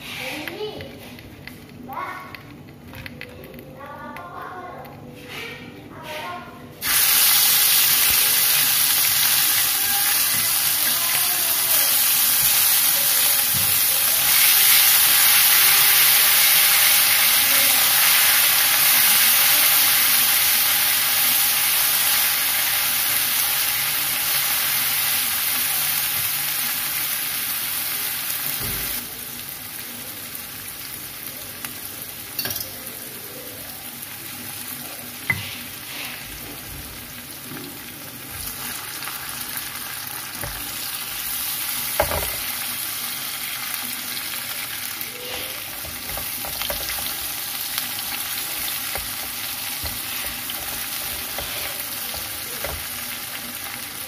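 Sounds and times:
spice paste sizzling in oil: 6.8s - 54.0s.

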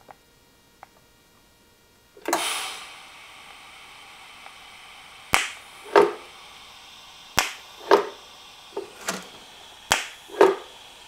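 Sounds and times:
welding torch arc cracks: 2.2s - 11.0s.

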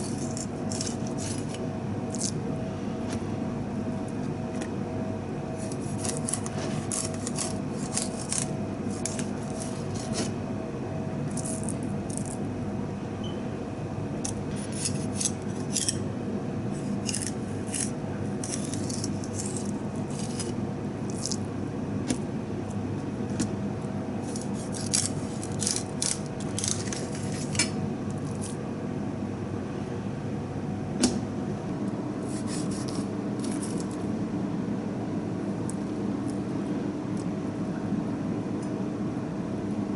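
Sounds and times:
knife scraping fish bones: 0.0s - 2.4s, 5.6s - 10.3s, 14.3s - 16.1s, 16.7s - 21.4s, 24.2s - 28.6s, 32.2s - 34.0s
background hum: 0.0s - 39.9s.

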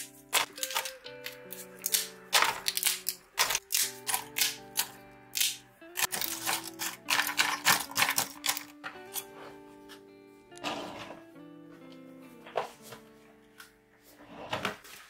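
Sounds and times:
plastic blister packs clicking: 0.0s - 8.8s
soft background music: 0.0s - 15.0s.

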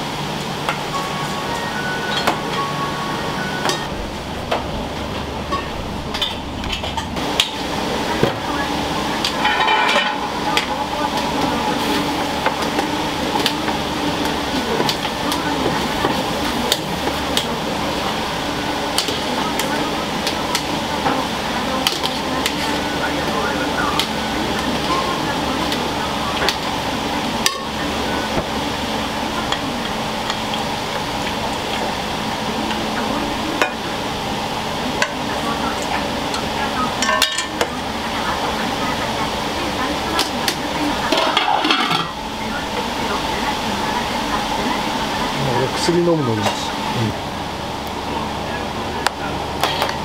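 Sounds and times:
kitchen equipment hum: 0.0s - 50.0s
bowls and utensils clinking: 41.1s - 42.2s.

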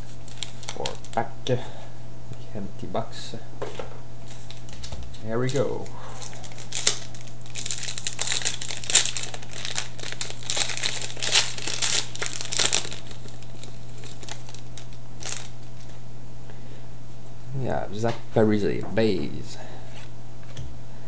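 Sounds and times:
wrapper tearing and crinkling: 0.2s - 1.2s, 4.3s - 15.9s.

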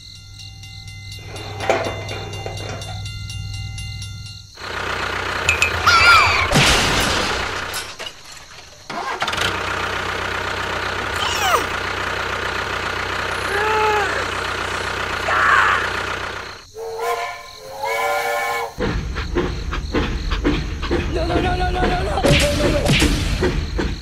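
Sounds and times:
engine-like running noise: 1.2s - 16.7s
swooping whistle-like tones: 5.5s - 6.6s, 15.3s - 19.0s.

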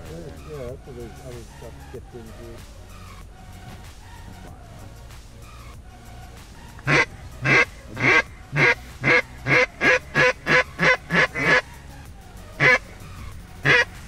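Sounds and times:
duck call quacks: 6.8s - 11.7s, 12.6s - 12.8s, 13.6s - 14.0s.

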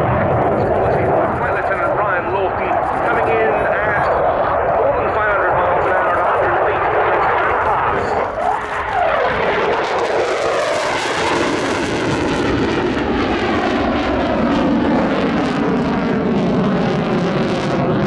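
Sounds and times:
jet engines roaring: 0.0s - 18.0s.

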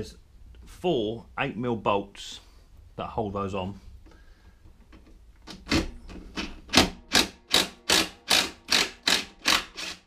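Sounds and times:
impact driver hammering: 6.7s - 10.0s.

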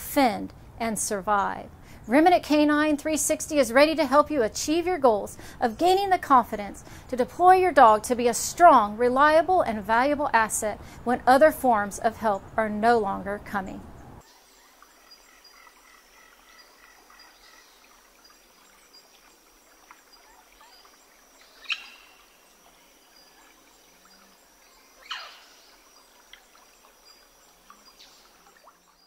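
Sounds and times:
birds calling: 19.7s - 28.9s.

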